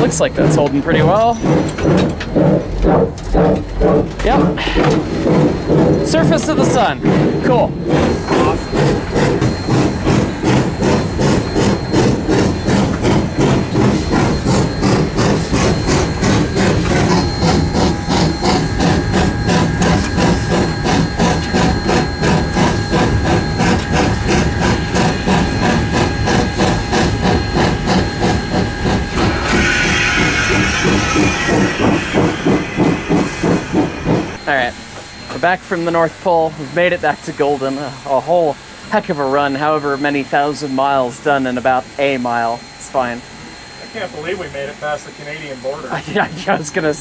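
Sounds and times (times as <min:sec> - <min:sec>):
steam locomotive chuffing: 0:00.0 - 0:47.0
steam hissing: 0:03.8 - 0:47.0.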